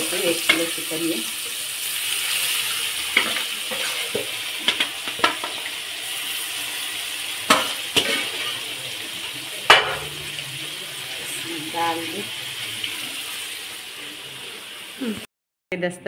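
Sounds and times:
chicken sizzling in hot oil: 0:00.0 - 0:15.3.

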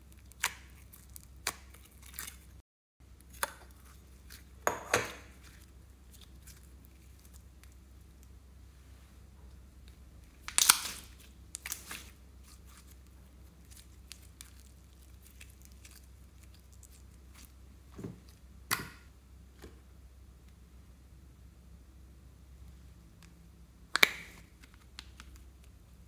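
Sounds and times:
slime squishing by hand: 0:00.0 - 0:02.6, 0:03.2 - 0:08.4, 0:09.6 - 0:19.1.

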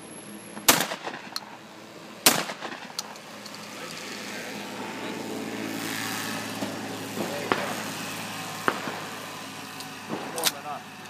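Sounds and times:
shotgun shot with echo: 0:00.6 - 0:01.4, 0:02.2 - 0:02.9, 0:07.2 - 0:07.8, 0:08.6 - 0:09.2.

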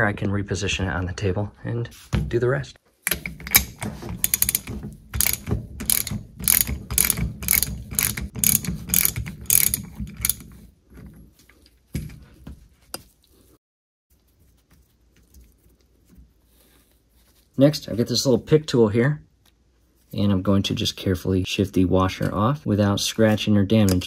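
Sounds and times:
socket ratchet clicking: 0:03.0 - 0:10.4.

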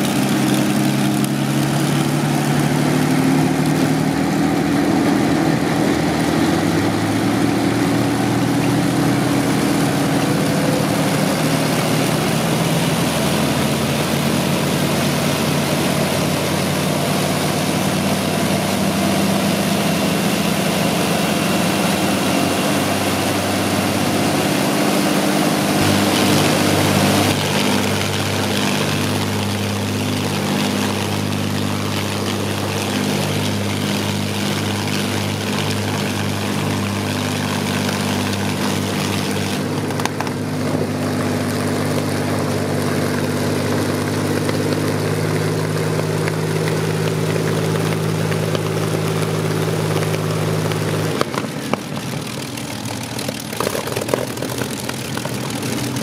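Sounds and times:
aircraft engines running: 0:00.0 - 0:56.0.

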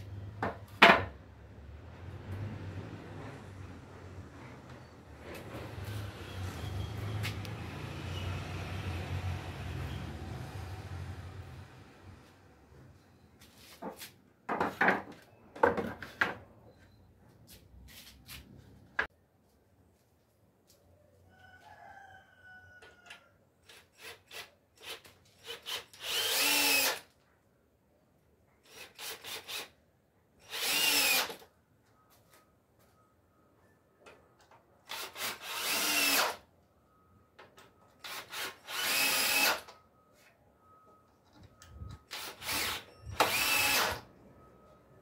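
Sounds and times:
cordless drill drilling into wood: 0:24.0 - 0:27.0, 0:28.7 - 0:29.7, 0:30.4 - 0:31.4, 0:34.9 - 0:36.4, 0:38.0 - 0:39.7, 0:42.1 - 0:44.0.

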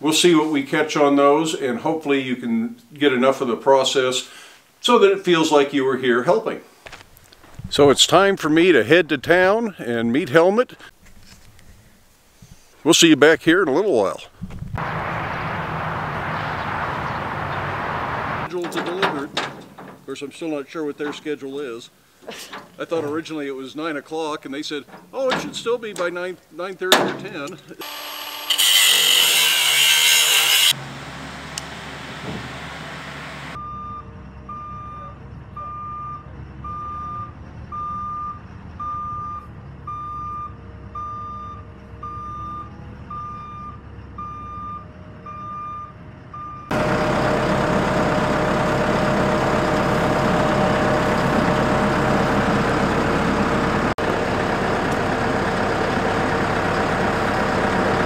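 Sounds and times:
engine running: 0:14.8 - 0:20.1, 0:30.5 - 0:35.5, 0:46.7 - 0:58.0
reversing alarm beeping: 0:33.5 - 0:47.5.

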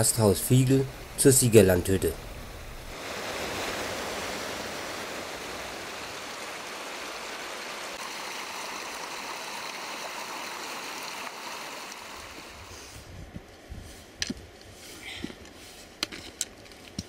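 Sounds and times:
stream rushing over rocks: 0:02.9 - 0:12.7
trekking poles clicking on rock: 0:14.2 - 0:17.0.

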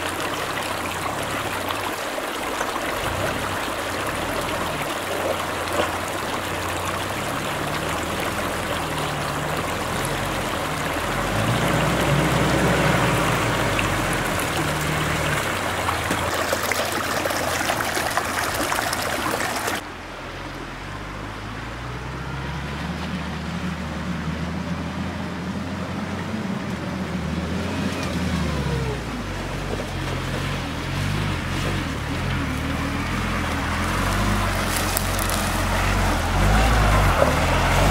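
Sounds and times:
stream water rushing: 0:00.0 - 0:37.9
car engine revving: 0:03.0 - 0:16.2, 0:22.0 - 0:37.9.

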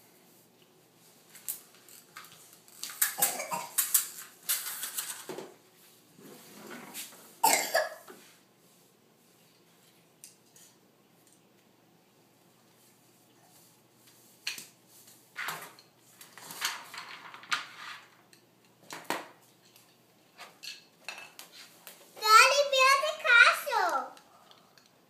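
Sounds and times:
short coughs: 0:07.4 - 0:08.0.

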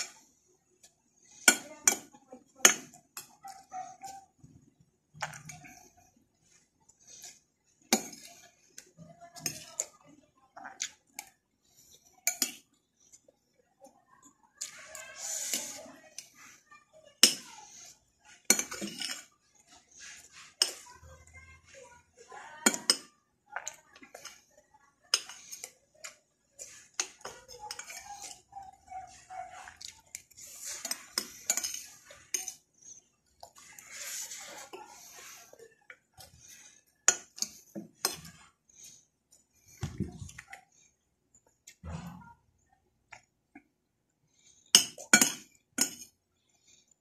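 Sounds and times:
spoon clinking against ceramic bowl: 0:30.6 - 0:32.6, 0:44.7 - 0:46.1.

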